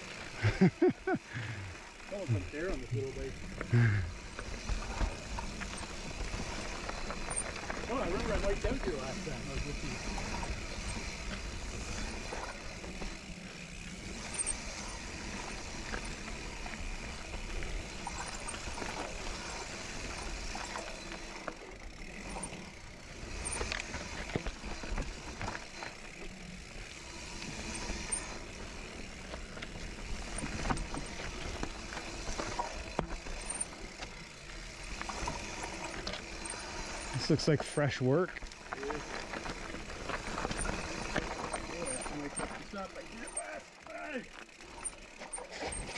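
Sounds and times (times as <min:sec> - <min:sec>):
bike rattling over roots and rocks: 0:00.0 - 0:45.9
bike tyres rumbling on dirt trail: 0:00.0 - 0:45.9.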